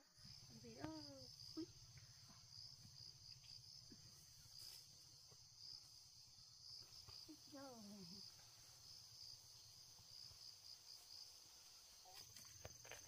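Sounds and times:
insects chirping: 0.0s - 13.0s.

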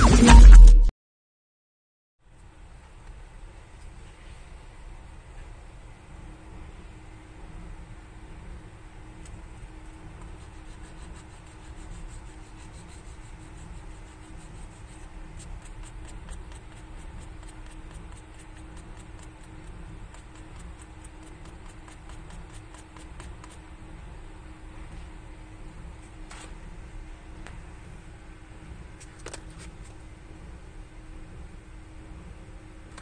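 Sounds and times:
steady background hum: 2.2s - 33.0s
fingertip scratching nail file: 10.2s - 23.7s.

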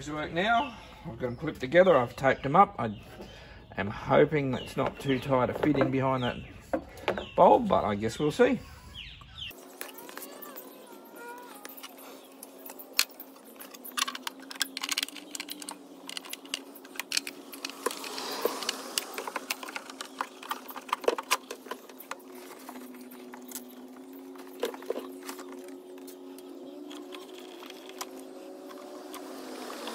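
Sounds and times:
plastic parts clicking and rattling: 9.6s - 29.3s.

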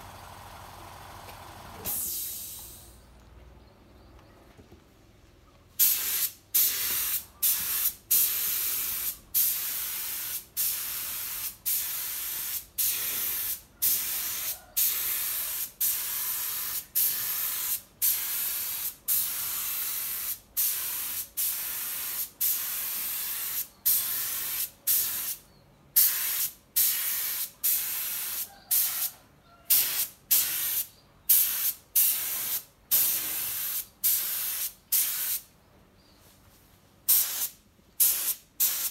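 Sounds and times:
spray gun hissing: 5.8s - 25.4s, 26.0s - 28.8s, 29.7s - 35.5s, 37.1s - 38.9s.

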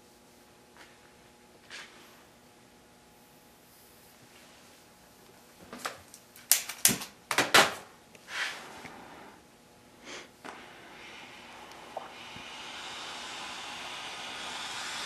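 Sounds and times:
torch flame hissing: 10.0s - 15.0s
gas igniting whoosh: 10.6s - 15.0s.

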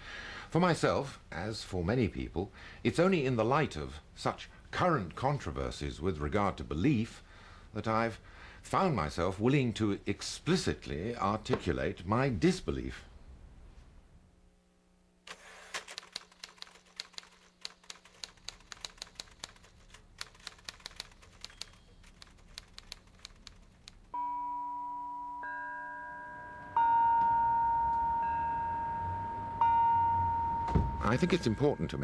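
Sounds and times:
typewriter keys clacking: 15.3s - 24.1s
bell-like musical chords: 24.2s - 32.0s.

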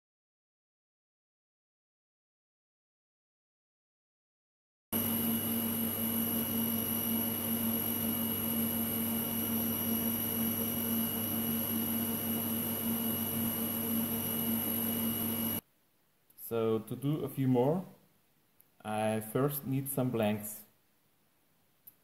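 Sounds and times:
machine hum: 5.0s - 15.6s.

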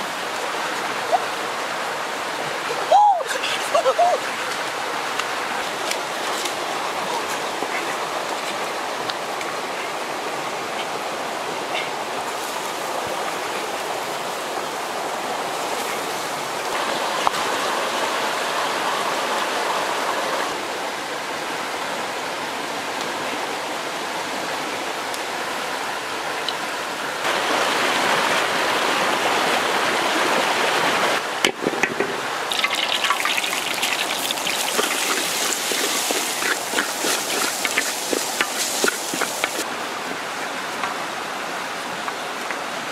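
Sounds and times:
river running over rocks: 0.0s - 42.9s
oil sizzling in a wok: 32.5s - 39.6s.

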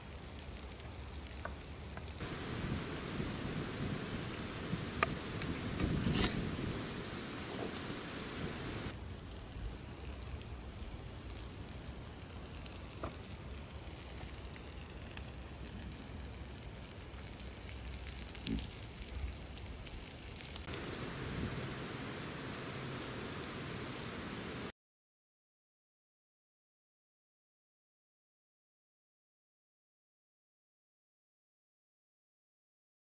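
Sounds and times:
wood stove crackling hiss: 0.0s - 24.7s.

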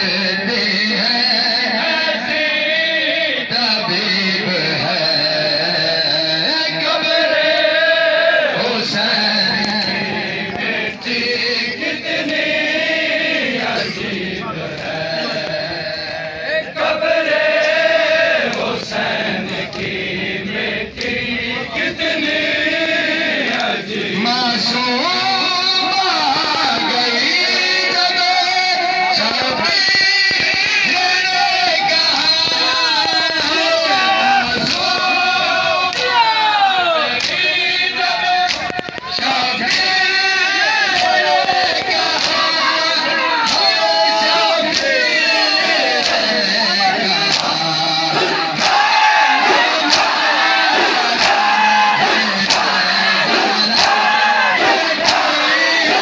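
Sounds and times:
many voices chanting a lament: 0.0s - 56.0s
hands slapping chests: 34.6s - 35.1s, 35.9s - 36.2s, 37.1s - 37.4s, 38.4s - 39.9s, 40.9s - 42.4s, 43.4s - 43.7s, 44.6s - 45.0s, 45.9s - 46.3s, 47.2s - 47.6s, 48.2s - 55.4s
chest beating slaps: 49.6s - 55.4s.

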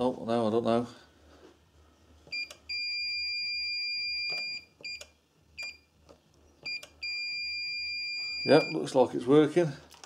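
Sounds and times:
electronic tester beeping: 2.3s - 5.9s, 6.6s - 8.9s.

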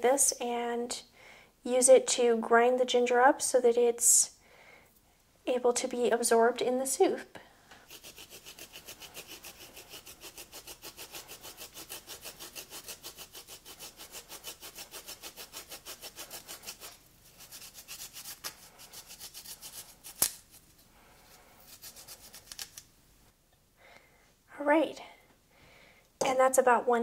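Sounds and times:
ginger scraping on grater: 7.9s - 20.3s, 21.6s - 22.8s.

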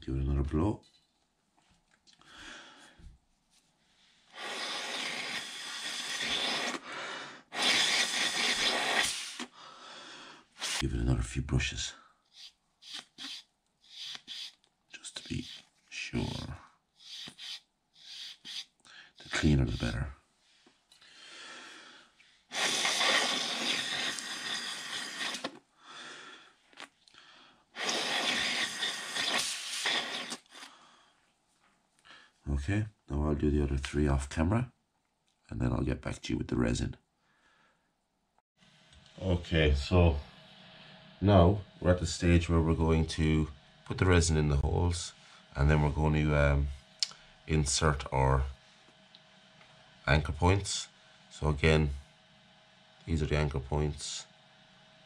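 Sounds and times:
person blowing through plastic tube: 4.3s - 9.5s, 12.3s - 14.6s, 17.0s - 18.7s, 22.5s - 25.6s, 27.8s - 30.8s
wire brush scratching: 12.3s - 16.4s, 17.0s - 20.0s.

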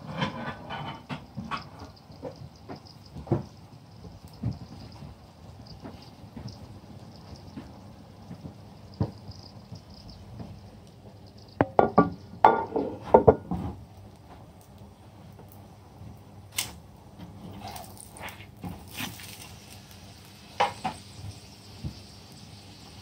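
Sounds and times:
kitchenware clattering and clinking: 0.0s - 3.5s, 11.5s - 13.8s.

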